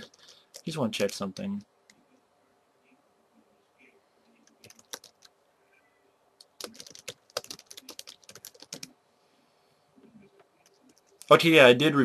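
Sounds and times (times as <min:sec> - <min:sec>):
computer keyboard typing: 0:04.4 - 0:05.4, 0:06.4 - 0:09.0.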